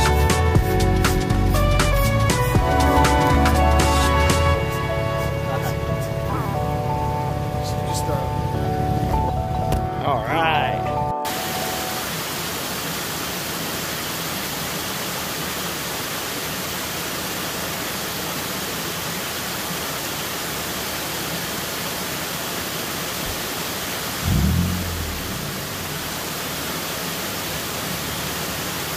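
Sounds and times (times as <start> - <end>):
steady hiss: 11.3 - 28.9.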